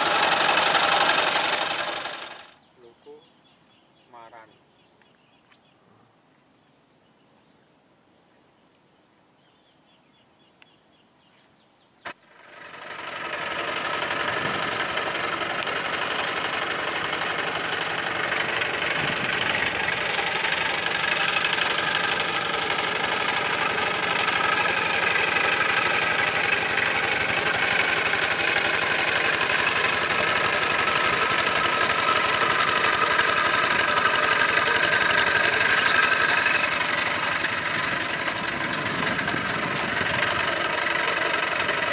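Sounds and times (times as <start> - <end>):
diesel tractor engine running: 0.0 - 2.6, 12.2 - 41.9.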